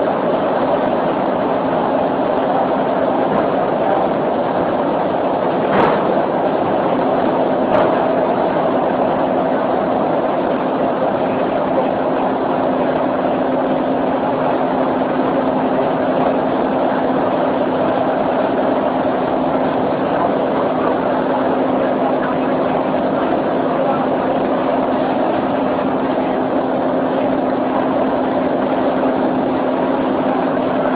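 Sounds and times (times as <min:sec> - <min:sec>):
train wheels rushing rumble: 0:00.0 - 0:30.9.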